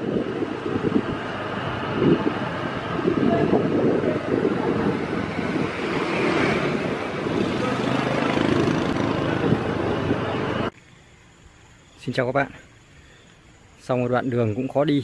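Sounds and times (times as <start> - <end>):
wind on microphone: 0.0 - 10.7.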